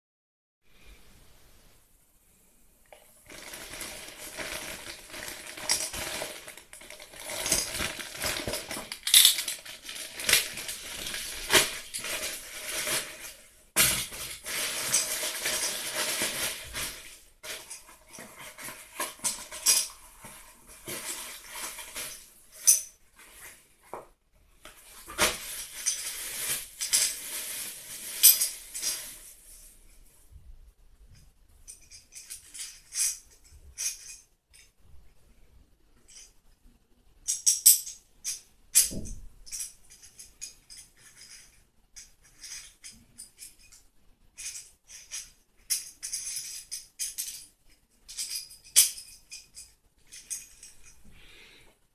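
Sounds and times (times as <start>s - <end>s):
plastic crinkling and rustling: 2.9s - 29.8s.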